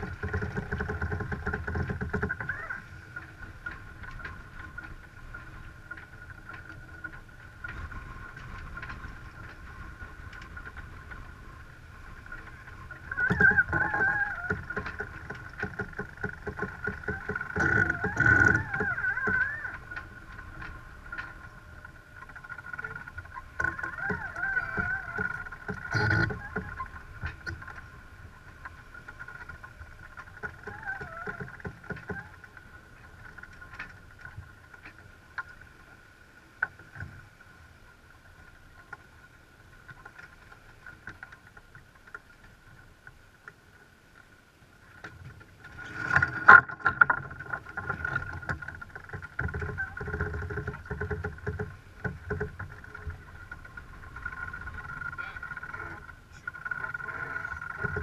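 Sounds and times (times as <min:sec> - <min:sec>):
wind on microphone: 0:00.0 - 0:32.5
water rushing along hull: 0:00.0 - 0:58.0.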